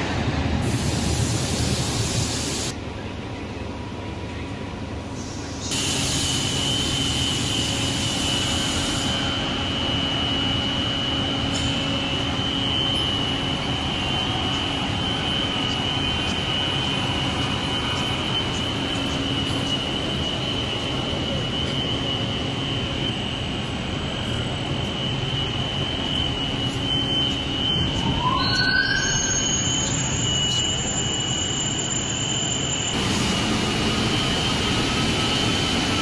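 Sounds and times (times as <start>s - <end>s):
loud hiss: 0.6s - 2.7s, 5.2s - 13.7s, 29.6s - 36.0s
high whine: 5.7s - 36.0s
furnace mechanical rumble: 6.5s - 28.3s.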